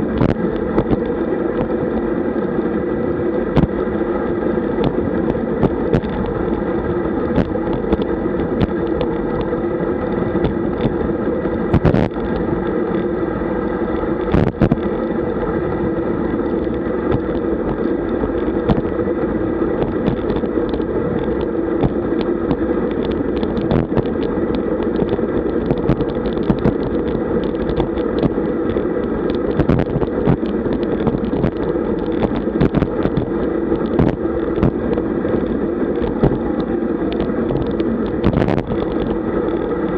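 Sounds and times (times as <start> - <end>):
bicycle tyre noise: 0.0 - 39.9
knocks and rattles from road: 10.3 - 13.0, 16.7 - 18.9.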